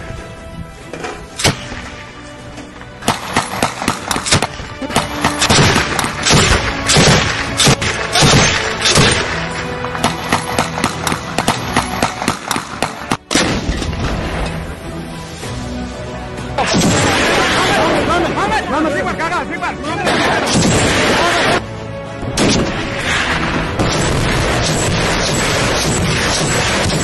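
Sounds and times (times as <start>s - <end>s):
background music: 0.0s - 27.0s
machine gun firing bursts: 23.8s - 27.0s.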